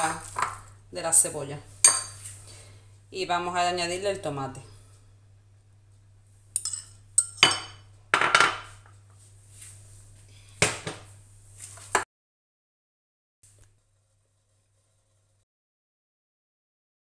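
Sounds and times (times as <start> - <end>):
utensil clinking on dish: 6.6 - 8.7.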